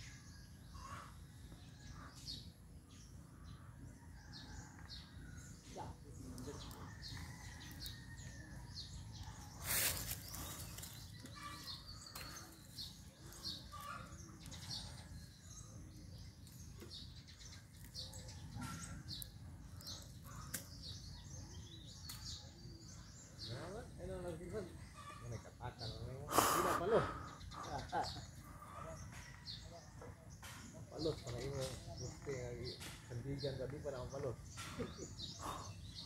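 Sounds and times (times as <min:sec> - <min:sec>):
birds chirping: 0:00.0 - 0:36.0.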